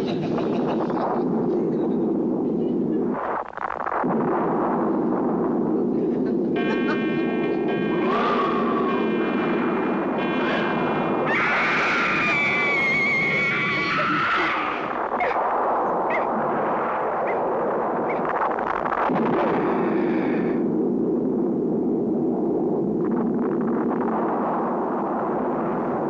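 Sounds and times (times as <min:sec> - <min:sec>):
steady rushing roar: 0:00.0 - 0:26.0
thin whines: 0:04.6 - 0:19.1.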